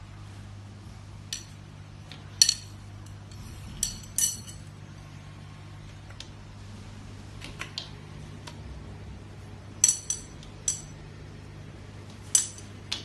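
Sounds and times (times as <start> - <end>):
steady low hum: 0.0 - 13.0
metal rod clinking on tiled floor: 1.3 - 1.6, 2.4 - 4.7, 9.8 - 11.0, 12.3 - 12.7.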